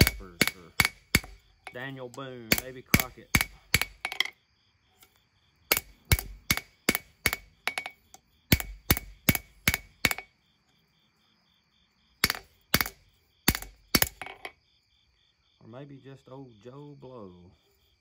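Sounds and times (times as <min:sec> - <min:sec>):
hammer striking steel on anvil: 0:00.0 - 0:04.3, 0:05.7 - 0:10.3, 0:12.2 - 0:14.5.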